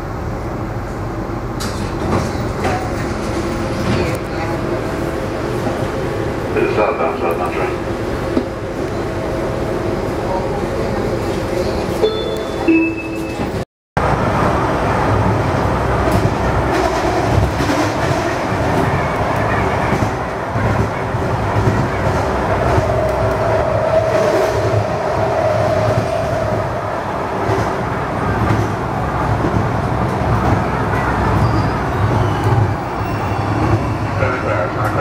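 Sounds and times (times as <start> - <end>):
train car hum and rumble: 0.0 - 35.0
train whine: 2.6 - 35.0.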